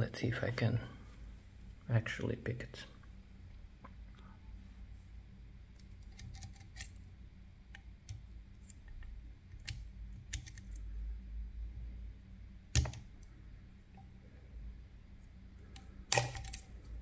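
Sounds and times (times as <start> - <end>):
lock pick metallic clicks: 15.7 - 16.7.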